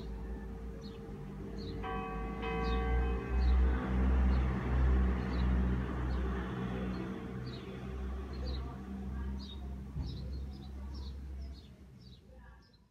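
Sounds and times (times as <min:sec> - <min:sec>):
church bell ringing: 0:00.0 - 0:08.6
small birds chirping: 0:00.0 - 0:12.9.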